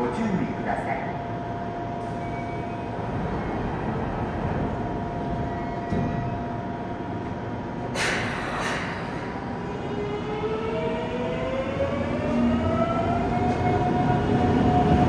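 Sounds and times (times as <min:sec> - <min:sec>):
subway train machinery hum: 0:00.0 - 0:15.0
air brakes hissing: 0:07.9 - 0:09.5.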